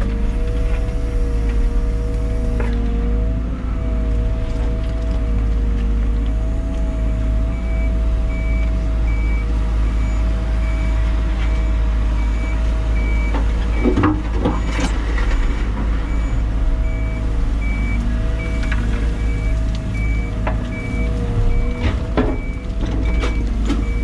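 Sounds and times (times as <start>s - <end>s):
excavator engine and hydraulic hum: 0.0s - 24.0s
reversing alarm beeping: 7.0s - 24.0s.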